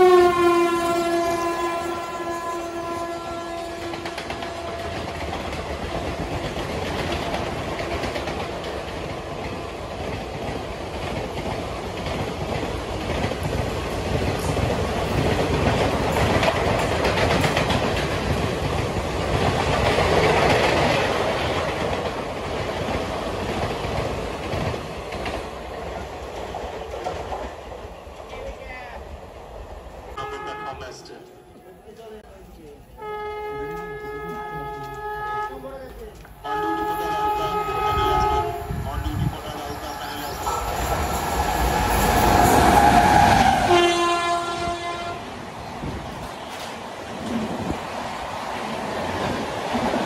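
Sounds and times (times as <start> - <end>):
train horn blast: 0.0 - 5.3, 30.2 - 31.3, 33.0 - 35.8, 36.4 - 39.3, 42.4 - 45.3
train wheels clattering over rail joints: 3.7 - 28.4.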